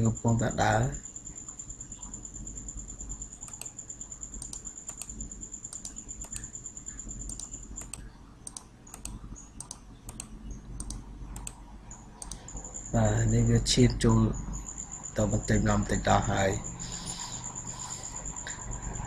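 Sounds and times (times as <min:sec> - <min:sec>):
steady high-pitched whine: 0:00.0 - 0:19.0
low hum: 0:01.9 - 0:19.0
computer keyboard and mouse clicking: 0:03.4 - 0:13.0.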